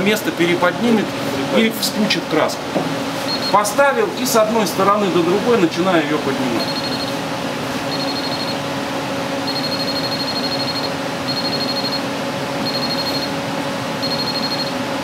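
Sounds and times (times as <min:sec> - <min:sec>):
steady electrical hum: 0:00.0 - 0:15.0
high electronic beep: 0:06.6 - 0:07.2, 0:07.9 - 0:08.6, 0:09.4 - 0:12.0, 0:12.6 - 0:13.3, 0:14.0 - 0:14.8.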